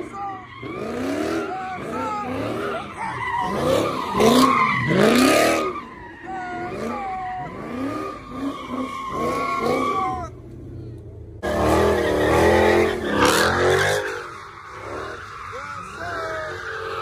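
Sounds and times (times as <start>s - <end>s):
tyres squealing: 0.0s - 10.4s, 11.4s - 17.0s
car engine revving: 0.0s - 17.0s.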